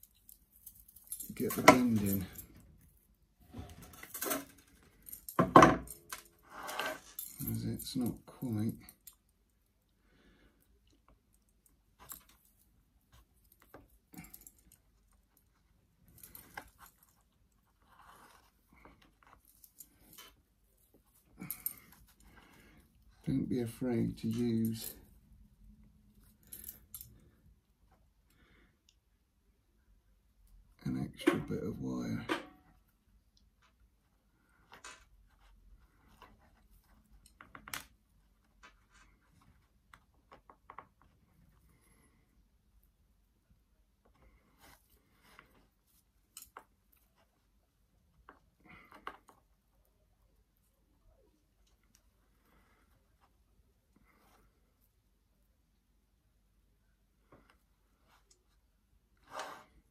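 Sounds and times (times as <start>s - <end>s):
wire clicks and crackles: 0.0s - 9.6s, 34.5s - 41.3s
soft rustling: 9.9s - 28.6s.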